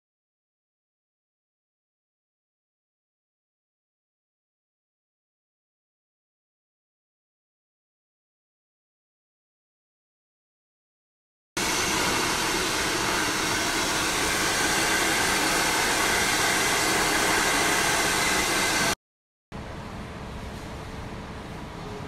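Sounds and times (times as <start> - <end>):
hair dryer blowing: 11.6 - 19.0.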